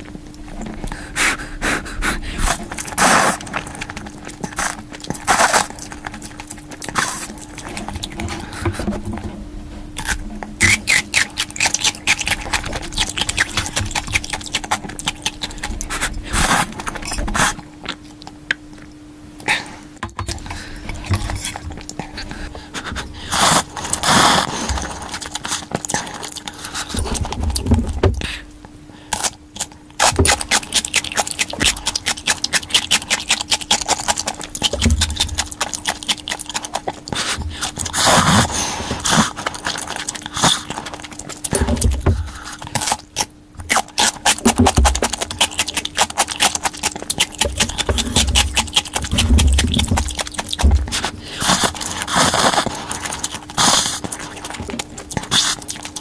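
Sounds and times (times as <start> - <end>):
chewing: 0.0 - 9.2, 10.0 - 19.7, 20.3 - 28.5, 29.1 - 56.0
slurping noodles: 0.6 - 8.8, 20.4 - 27.4, 30.0 - 42.9, 43.8 - 56.0.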